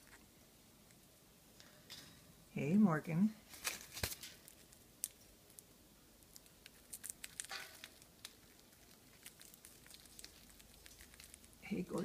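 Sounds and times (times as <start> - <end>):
parrot beaks clicking on cage bars: 6.8 - 11.5.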